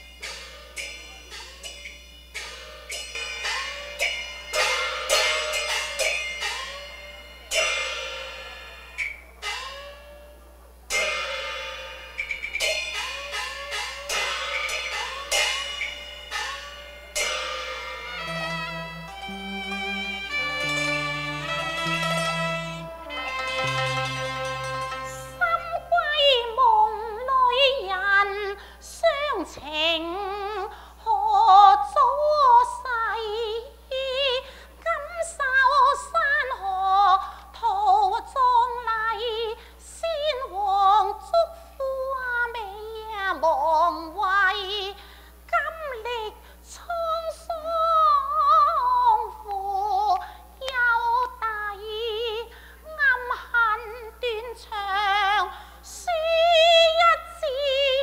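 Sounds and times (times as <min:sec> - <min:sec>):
woman singing opera with vibrato: 0:25.0 - 0:58.0.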